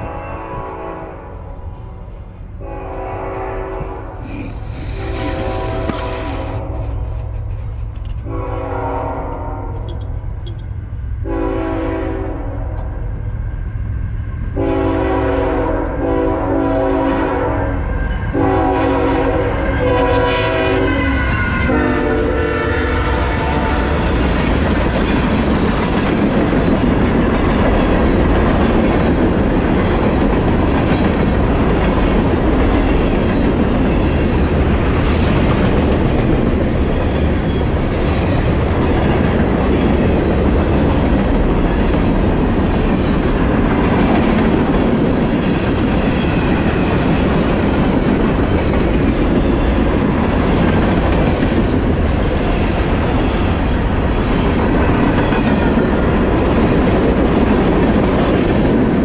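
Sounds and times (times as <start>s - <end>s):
locomotive horn: 0.0s - 1.5s, 2.6s - 4.2s, 4.9s - 7.1s, 8.2s - 10.6s, 11.2s - 13.0s, 14.6s - 24.0s
freight train rumbling past: 0.0s - 59.0s
train wheels clacking on rails: 21.3s - 59.0s.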